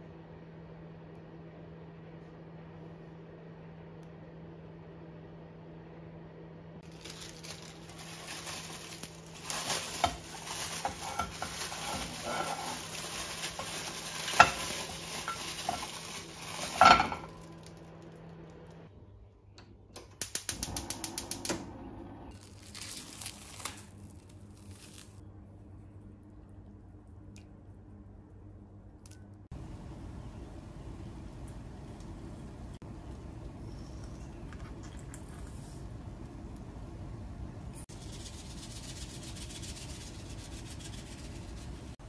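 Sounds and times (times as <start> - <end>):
cling film rustling: 6.8 - 17.8, 22.4 - 25.2
plastic bag crinkling: 6.8 - 17.9, 22.3 - 25.2.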